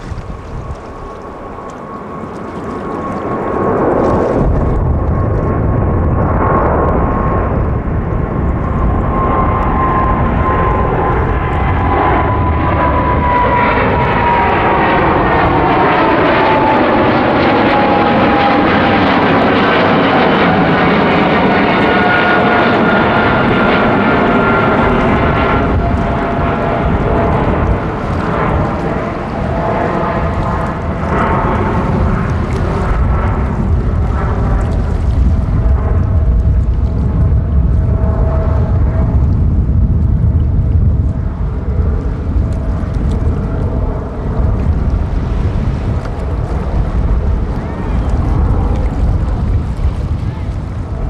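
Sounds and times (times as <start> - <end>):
jet engine rumble: 0.0 - 51.0.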